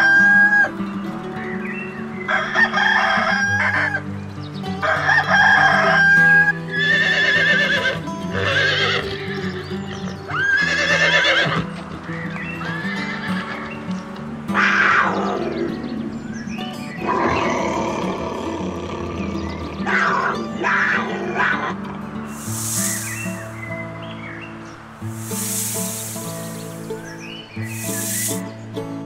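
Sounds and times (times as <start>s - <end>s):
rooster crowing: 2.3s - 4.0s, 4.8s - 6.2s
horses whinnying: 6.7s - 9.7s, 10.3s - 11.7s, 12.6s - 13.6s
background music: 19.8s - 29.0s.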